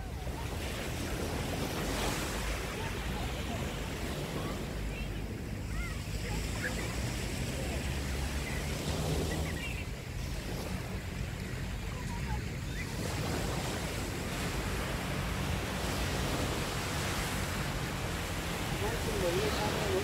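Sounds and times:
small waves breaking on sand: 0:00.0 - 0:20.0
wind buffeting microphone: 0:00.0 - 0:20.0.

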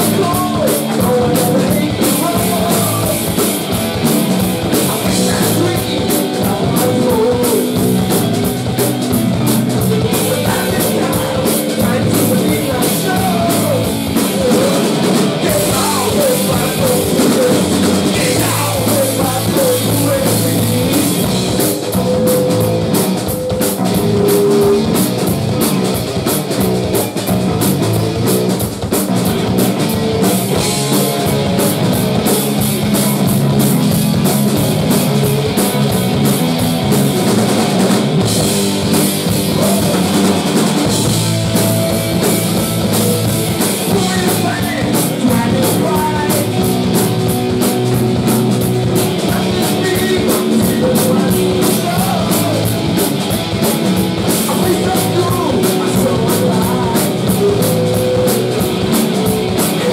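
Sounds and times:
bass guitar: 0:00.0 - 0:59.9
distorted electric guitars: 0:00.0 - 0:59.9
drum kit: 0:00.0 - 0:59.9
held lead guitar notes: 0:29.2 - 0:59.9.

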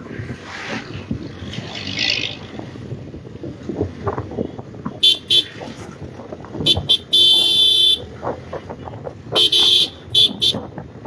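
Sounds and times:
motorcycle rumble: 0:00.0 - 0:11.0
vehicle horn honking: 0:05.0 - 0:05.6, 0:06.6 - 0:08.0, 0:09.4 - 0:10.6.

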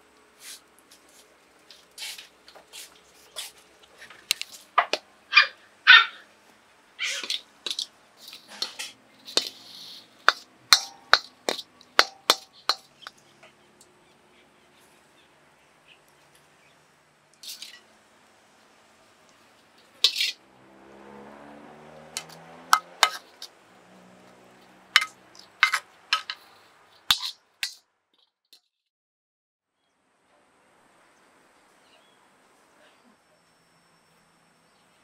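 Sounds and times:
ladle clinking against wok and plate: 0:10.3 - 0:13.2, 0:22.2 - 0:23.5, 0:25.0 - 0:26.4.

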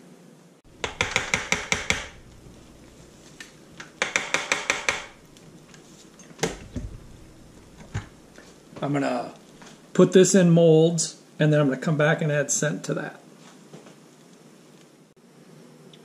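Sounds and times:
stick blender knocking on ceramic: 0:00.8 - 0:02.5, 0:03.8 - 0:05.3.

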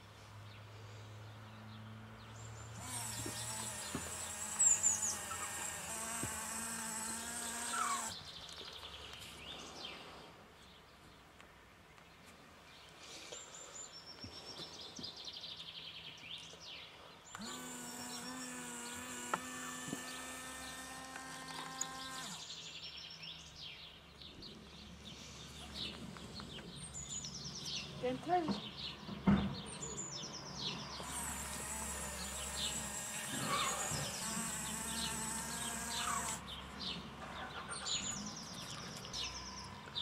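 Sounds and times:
birds chirping: 0:00.5 - 0:40.0
small electric motor whirring: 0:02.4 - 0:08.2, 0:17.3 - 0:22.6, 0:30.8 - 0:36.6.

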